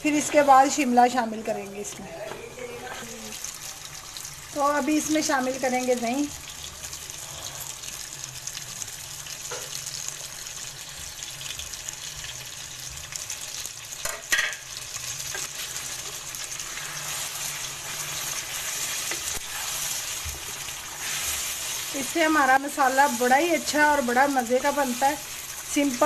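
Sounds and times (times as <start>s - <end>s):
food sizzling in hot oil: 3.0s - 26.0s
spatula stirring in pan: 15.2s - 26.0s.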